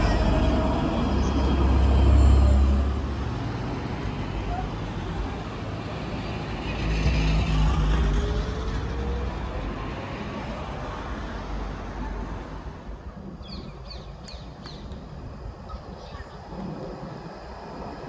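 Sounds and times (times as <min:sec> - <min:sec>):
tram rumbling past: 0:00.0 - 0:18.0.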